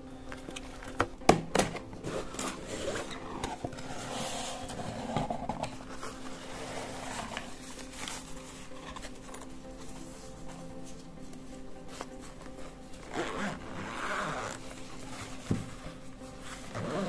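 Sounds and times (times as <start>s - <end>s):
cardboard scraping and rustling: 0.3s - 11.1s.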